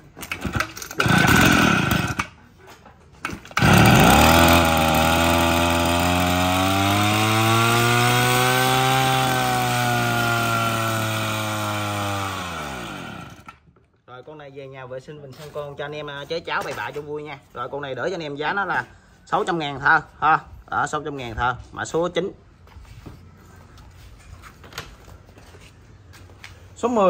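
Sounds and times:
brush cutter engine pull-started: 0.2s - 2.4s, 3.2s - 13.6s.

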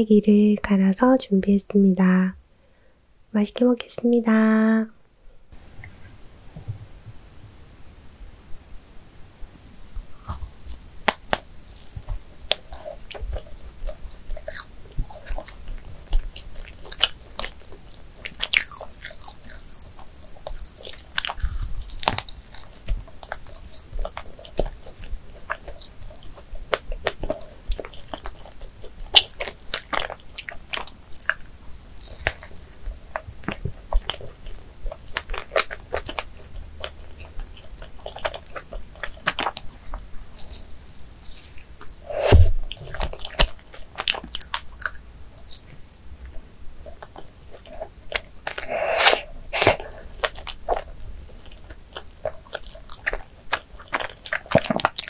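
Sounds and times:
chewing with clicks and crackles: 10.0s - 42.0s, 42.7s - 55.0s
biting into doughnut: 10.1s - 39.7s.

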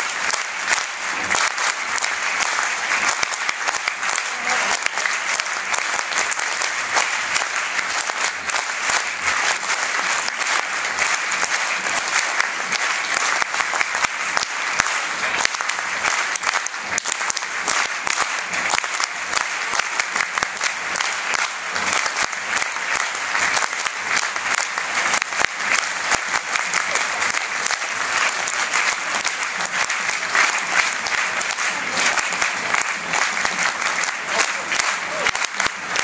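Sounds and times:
crowd applauding: 0.0s - 36.0s.

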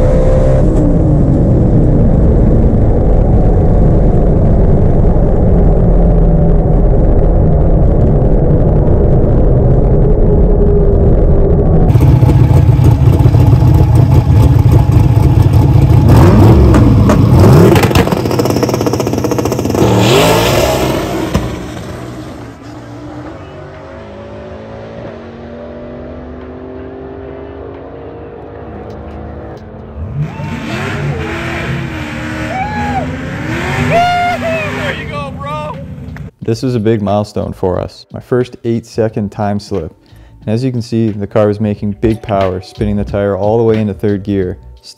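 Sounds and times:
car engine revving hard: 11.9s - 28.4s, 30.0s - 35.2s.

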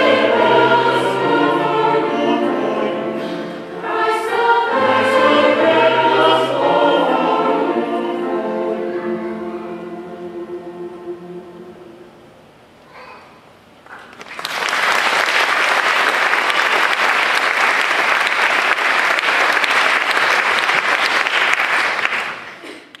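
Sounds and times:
audience applauding: 13.9s - 23.0s.

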